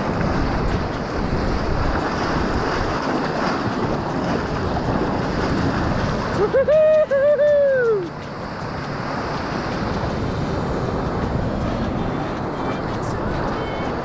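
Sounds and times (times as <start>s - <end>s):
surf washing and splashing: 0.0s - 14.0s
wind on microphone: 0.0s - 14.0s
person whooping: 6.4s - 8.1s.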